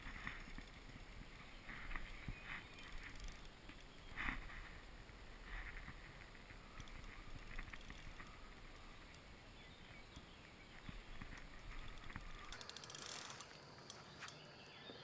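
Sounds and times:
reel small clicks: 0:01.7 - 0:04.4, 0:06.7 - 0:08.3, 0:11.2 - 0:14.4.

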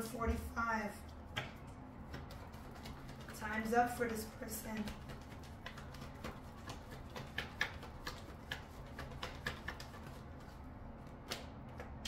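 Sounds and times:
cards being shuffled: 0:04.8 - 0:12.0.

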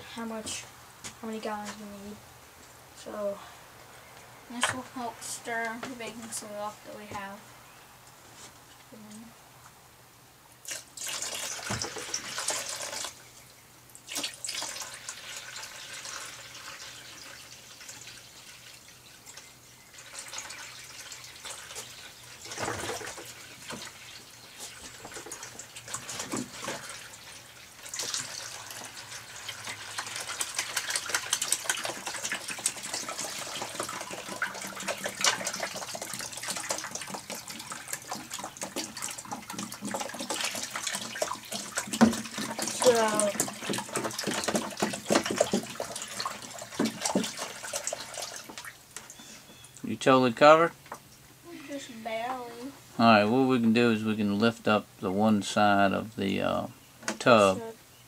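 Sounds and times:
water pouring into plastic tub: 0:10.6 - 0:13.2, 0:14.0 - 0:49.1.

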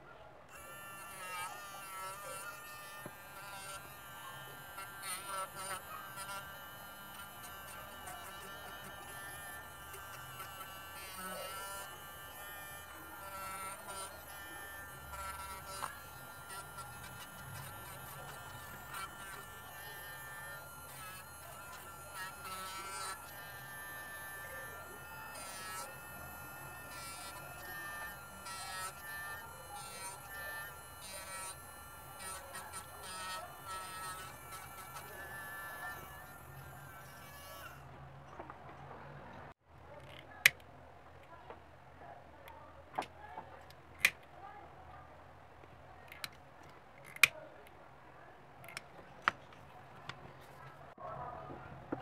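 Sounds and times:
rotary tool whirring: 0:00.5 - 0:37.9.

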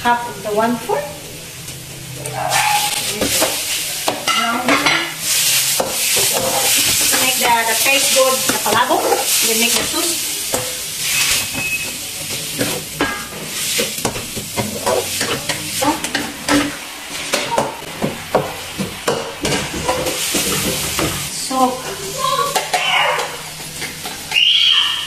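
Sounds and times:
meat sizzling in a wok: 0:00.0 - 0:25.0
spatula scraping a pan: 0:02.3 - 0:17.6.

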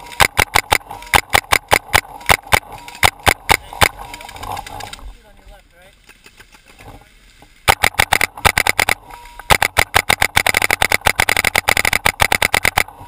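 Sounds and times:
paintball marker firing rapidly: 0:00.1 - 0:04.1, 0:07.7 - 0:13.0.

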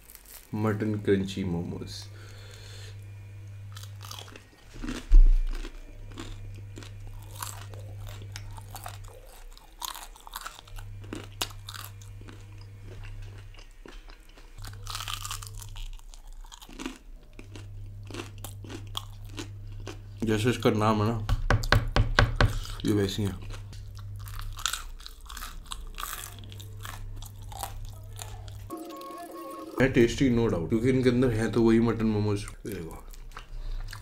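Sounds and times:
crunching and chewing: 0:00.0 - 0:00.8, 0:02.2 - 0:20.8, 0:22.5 - 0:29.7, 0:32.3 - 0:34.0.

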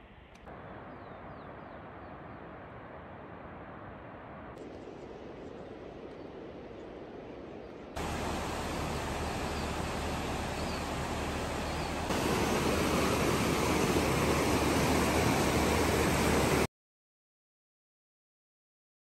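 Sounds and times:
river rushing over rocks: 0:08.0 - 0:16.6
outdoor hiss: 0:08.0 - 0:16.7.

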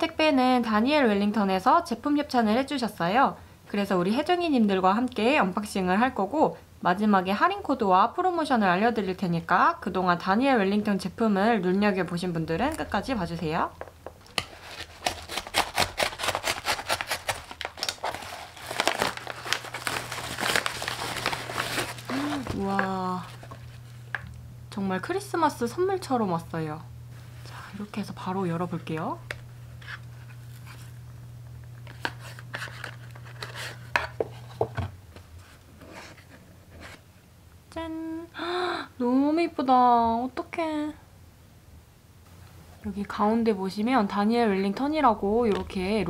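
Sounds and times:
paper mailer crinkling: 0:14.3 - 0:24.1, 0:31.8 - 0:34.7.

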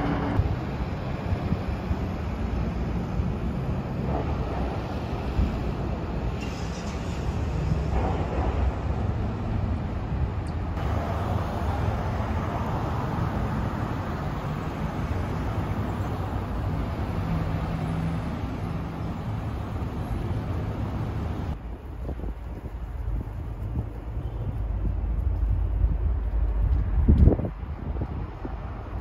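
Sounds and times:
cars driving past: 0:00.0 - 0:21.6
rumble of engines and tyres: 0:00.0 - 0:29.0.

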